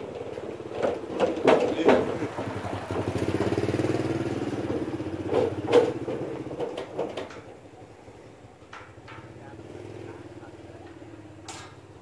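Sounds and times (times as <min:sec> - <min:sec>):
sharp knocks: 0:00.7 - 0:03.2, 0:04.6 - 0:07.6.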